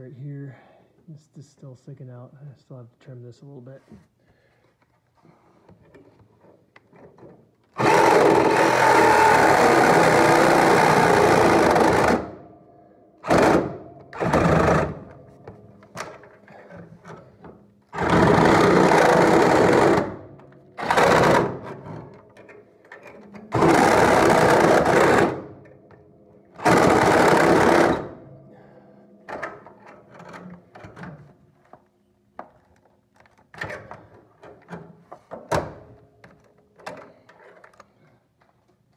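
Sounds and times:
power tool trimming metal: 7.8s - 12.4s, 13.2s - 15.0s, 18.0s - 21.6s, 23.5s - 25.5s, 26.6s - 28.2s.

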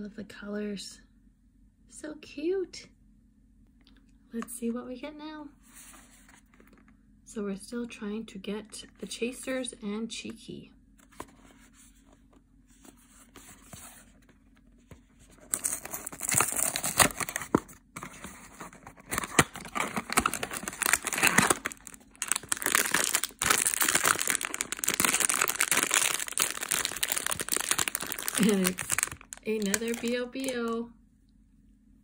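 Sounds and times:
cardboard box opening: 14.9s - 30.1s
foil packet crinkling and tearing: 15.4s - 30.8s.

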